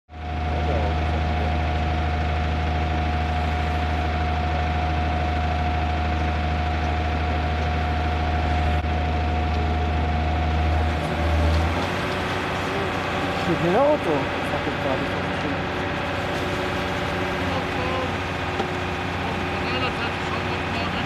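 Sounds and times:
diesel engine droning: 0.1 - 21.0
thin steady whine: 0.1 - 21.0.

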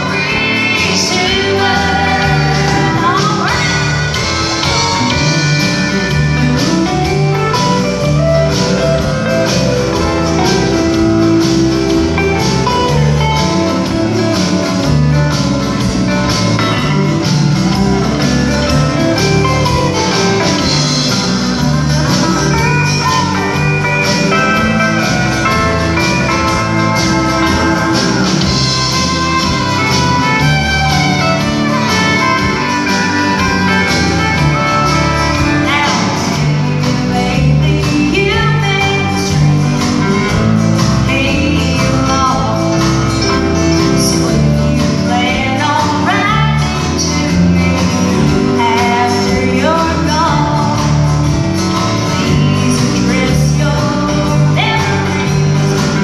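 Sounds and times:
bass: 0.0 - 56.0
guitars: 0.0 - 56.0
fiddle: 20.9 - 36.5.

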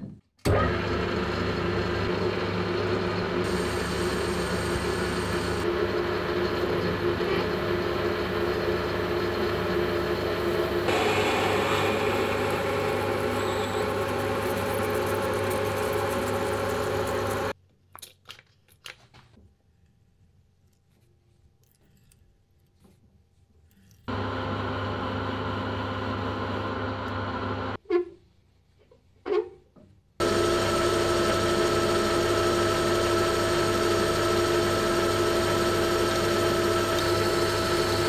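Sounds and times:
metal lathe humming: 1.2 - 17.6, 30.2 - 38.0
drill cutting steel: 3.4 - 17.6, 30.2 - 38.0.

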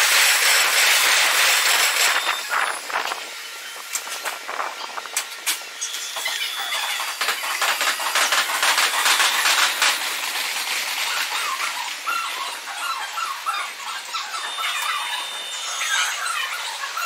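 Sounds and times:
electric train clattering: 0.0 - 12.8.

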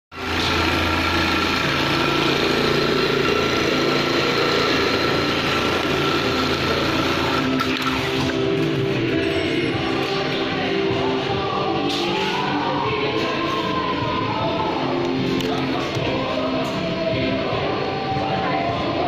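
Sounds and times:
sewing machine running: 0.1 - 8.9.

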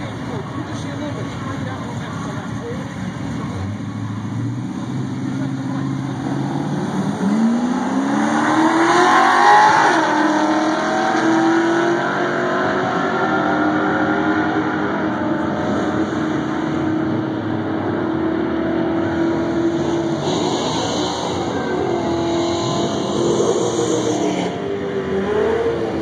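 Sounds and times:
race car engines revving: 0.0 - 26.0.

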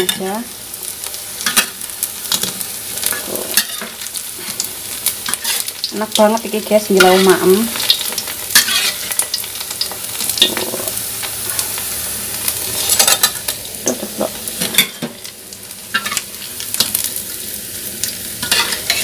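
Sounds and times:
fritters sizzling in hot oil: 0.0 - 19.0
metal spatula scraping a wok: 3.0 - 4.7, 5.3 - 5.7, 8.5 - 9.3, 12.6 - 13.4, 18.4 - 19.0.

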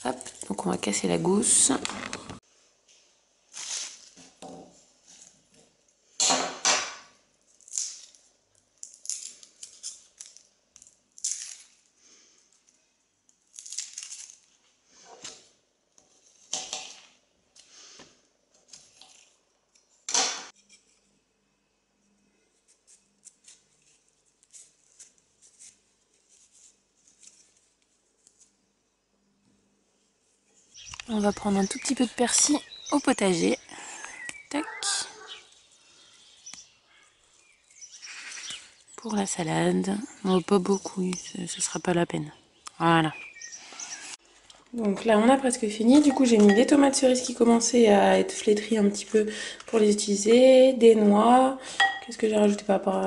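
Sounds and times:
garlic skins crackling: 7.3 - 15.5.

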